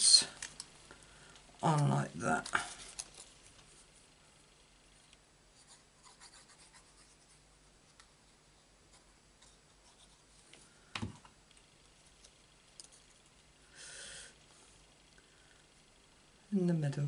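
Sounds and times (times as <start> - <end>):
paper rustling: 2.4 - 3.8.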